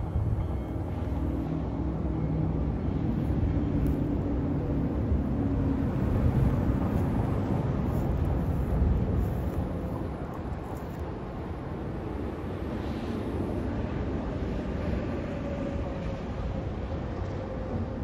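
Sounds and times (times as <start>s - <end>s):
distant train rumbling: 0.0s - 18.0s.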